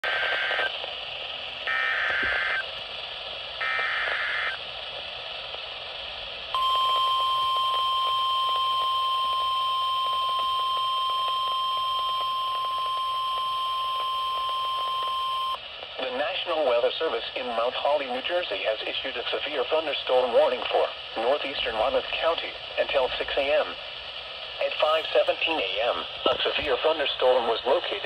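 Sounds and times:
data bursts from radio speaker: 0:00.0 - 0:00.7, 0:01.6 - 0:02.7, 0:03.6 - 0:04.6, 0:06.6 - 0:15.6, 0:24.6 - 0:28.0
radio hiss: 0:00.0 - 0:28.0
steady warning alarm tone: 0:06.6 - 0:15.6.

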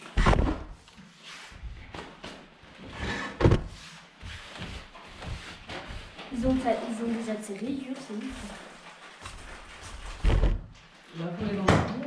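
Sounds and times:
rustling: 0:00.1 - 0:11.3
loud thumps: 0:00.2 - 0:00.7.

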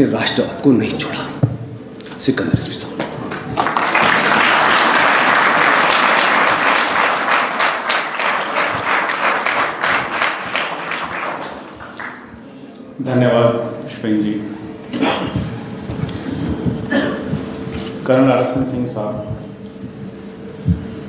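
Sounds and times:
audience applauding: 0:03.2 - 0:12.4.

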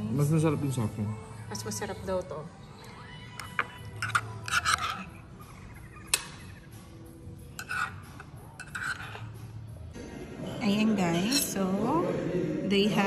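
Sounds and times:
cutlery clinking against dishes: 0:03.3 - 0:06.7, 0:07.5 - 0:09.4.

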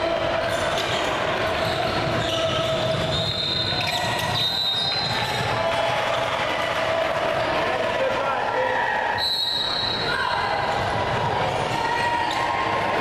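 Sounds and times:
hum of hall: 0:00.0 - 0:13.0
sneakers squeaking on floor: 0:00.5 - 0:05.6.

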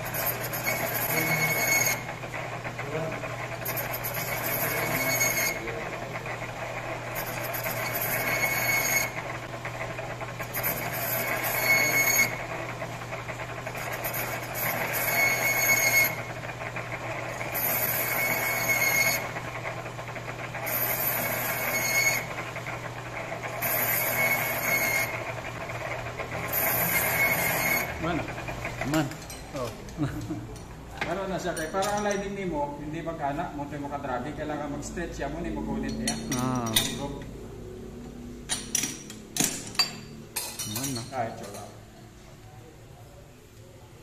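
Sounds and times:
cutting tool squealing on metal: 0:00.0 - 0:09.4, 0:10.4 - 0:12.8, 0:13.6 - 0:19.6, 0:20.5 - 0:25.4, 0:26.3 - 0:28.4
lathe motor hum: 0:00.0 - 0:29.3.

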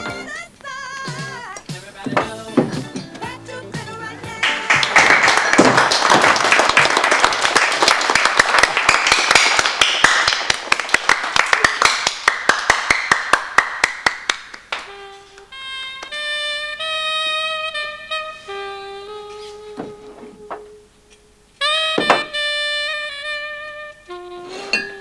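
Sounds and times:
crowd applauding: 0:04.3 - 0:14.9.

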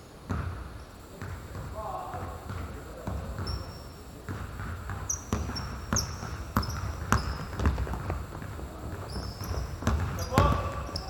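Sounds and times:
basketball bouncing on court: 0:00.3 - 0:11.0
shoe squeaks: 0:03.4 - 0:03.9, 0:05.0 - 0:07.6, 0:09.0 - 0:11.0.

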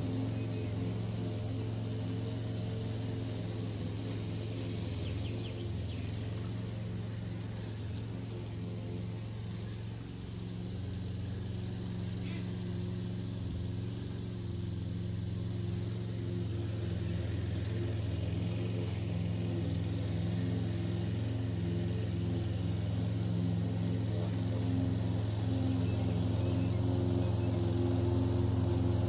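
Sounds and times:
lawn mower engine cutting grass: 0:00.0 - 0:29.0.

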